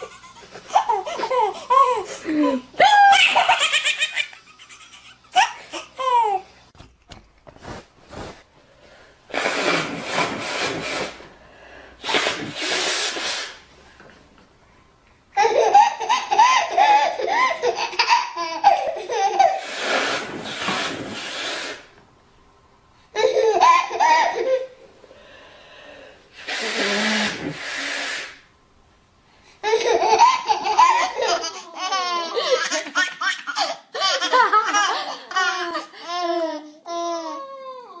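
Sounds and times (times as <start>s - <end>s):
baby laughing: 0.0s - 6.5s, 15.4s - 19.8s, 23.2s - 24.7s, 29.6s - 37.4s
adult blowing nose loudly: 9.3s - 13.7s, 19.4s - 22.0s, 25.6s - 28.5s.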